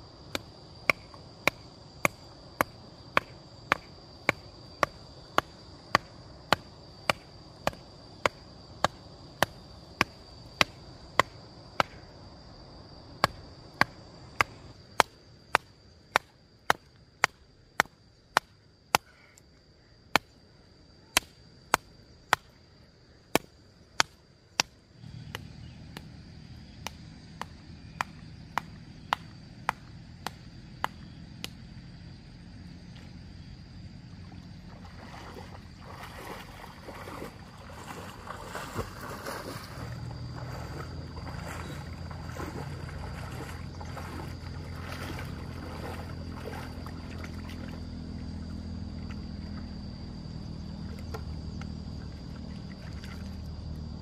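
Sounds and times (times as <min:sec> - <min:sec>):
sharp chopping knocks: 0:00.3 - 0:12.0
low hum: 0:25.0 - 0:54.0.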